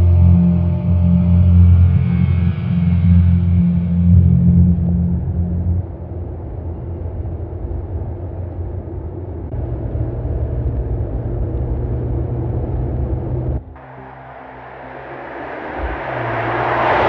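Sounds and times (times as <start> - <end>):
car engine running: 9.6 - 17.0.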